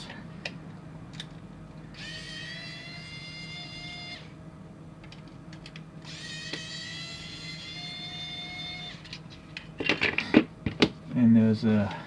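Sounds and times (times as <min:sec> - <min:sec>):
electric screwdriver whining: 0:06.1 - 0:09.1.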